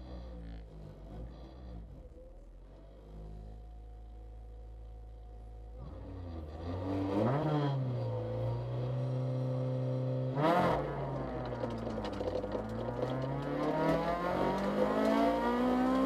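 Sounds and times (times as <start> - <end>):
car engine revving: 5.8 - 16.0.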